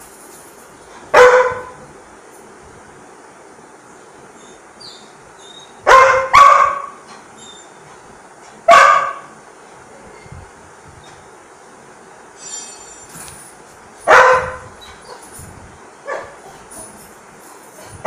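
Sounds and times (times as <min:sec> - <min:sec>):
dog barking: 0:01.1 - 0:01.8, 0:05.8 - 0:07.0, 0:08.7 - 0:09.3, 0:14.1 - 0:15.2, 0:16.1 - 0:16.5.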